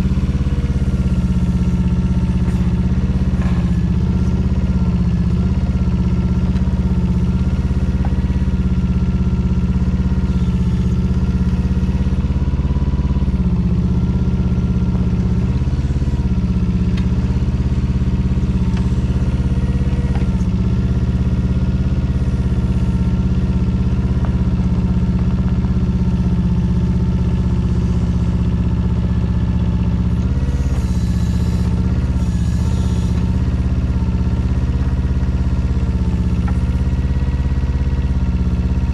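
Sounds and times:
diesel excavator engine running: 0.0 - 38.9.

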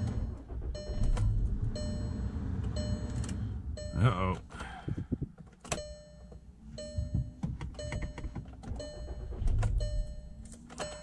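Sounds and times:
dashboard warning chime: 0.0 - 5.0, 5.7 - 11.0
car engine idling: 0.0 - 11.0.

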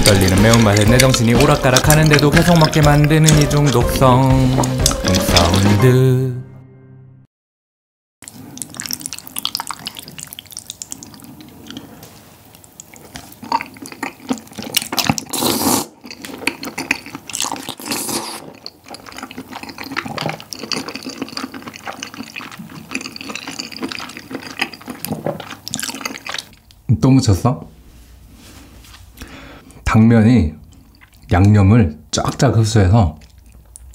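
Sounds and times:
chewing and lip smacks: 0.0 - 3.6, 8.2 - 11.9, 12.5 - 26.8, 30.6 - 31.3, 33.1 - 33.9
slurping noodles: 0.0 - 3.8, 4.4 - 5.8, 8.2 - 26.6
chopsticks in sauce: 0.0 - 5.8.

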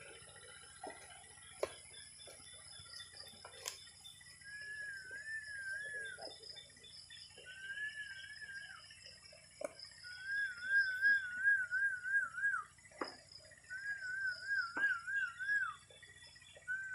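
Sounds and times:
wavering whistle: 4.0 - 16.9.

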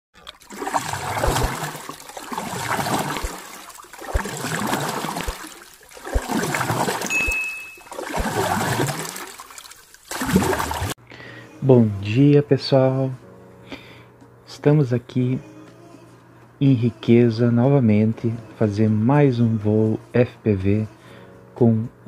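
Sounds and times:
water sloshing and splashing: 0.2 - 11.0
high beep: 7.1 - 7.9.

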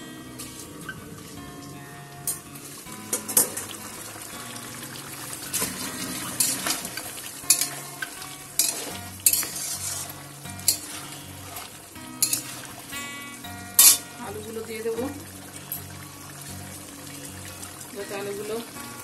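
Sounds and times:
chicken sizzling in pan: 0.0 - 19.0
metal spatula scraping pan: 5.5 - 12.8, 13.7 - 14.1.

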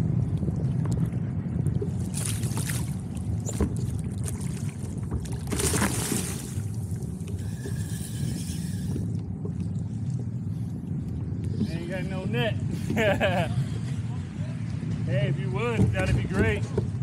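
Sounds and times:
water lapping at kayak hull: 0.0 - 17.0
wind buffeting microphone: 0.0 - 17.0
fish splashing: 1.9 - 8.8.

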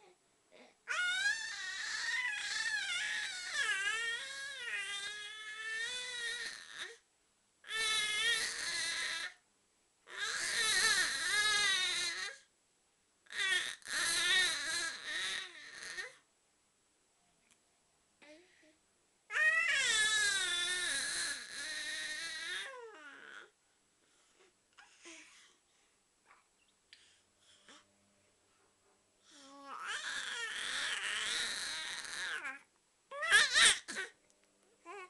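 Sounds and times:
infant cooing and babbling: 0.0 - 7.0, 7.6 - 9.4, 10.1 - 12.5, 13.3 - 16.2, 18.2 - 23.6, 24.2 - 25.6, 29.2 - 34.2, 34.8 - 35.0.

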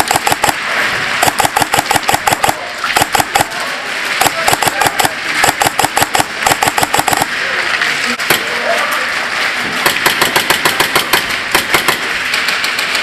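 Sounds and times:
airsoft guns firing: 0.0 - 3.6, 4.2 - 7.3, 9.8 - 12.9.

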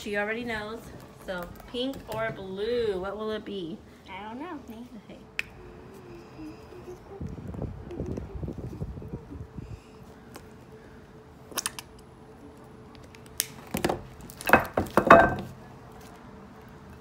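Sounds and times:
rough handling noise: 13.2 - 16.2.

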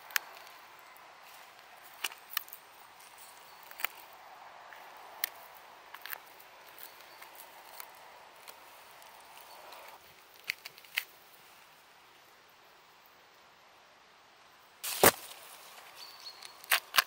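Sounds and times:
mushrooms snapping off: 0.0 - 0.6, 1.3 - 4.1, 4.7 - 11.1, 14.8 - 15.4, 16.4 - 17.0
faint steady hiss: 0.0 - 16.6.

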